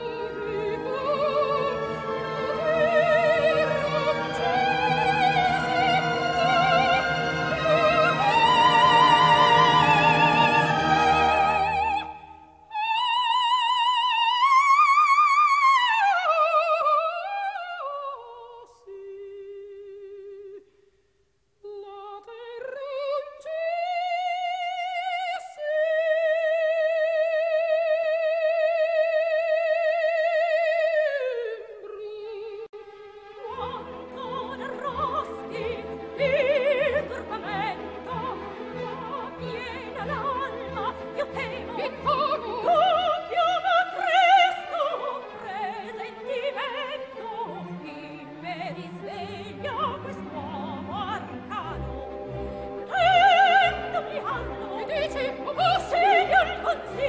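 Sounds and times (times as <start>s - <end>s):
orchestra playing: 0.0s - 12.2s, 33.4s - 57.0s
soprano singing opera: 0.0s - 20.6s, 21.6s - 32.8s, 33.4s - 57.0s.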